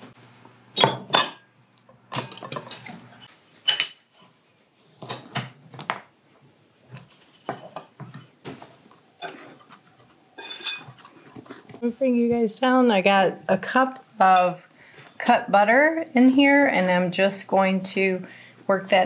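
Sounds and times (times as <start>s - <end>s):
metal utensil scraping in bowl: 9.2s - 11.8s.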